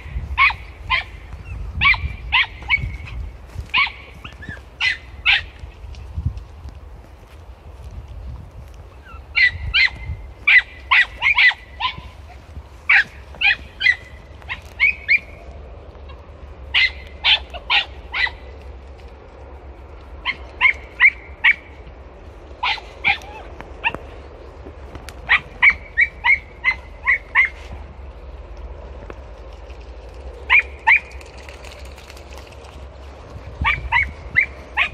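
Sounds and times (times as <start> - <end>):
hounds yelping and barking: 0.0 - 5.6, 9.0 - 18.6, 20.2 - 21.8, 22.6 - 24.2, 25.1 - 27.8, 30.4 - 32.1, 33.6 - 34.9.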